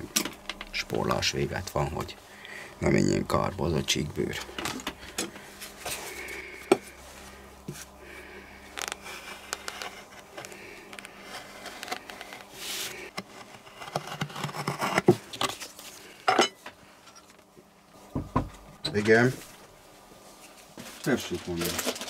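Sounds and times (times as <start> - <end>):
knife scraping leather: 8.8 - 15.1
knocks on wooden bench: 18.1 - 18.6.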